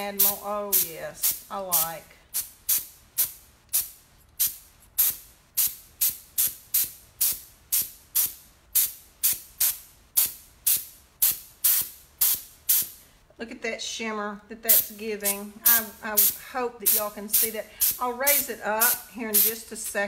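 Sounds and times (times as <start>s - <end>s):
compressed air blasts: 0.0s - 13.0s, 14.7s - 19.6s.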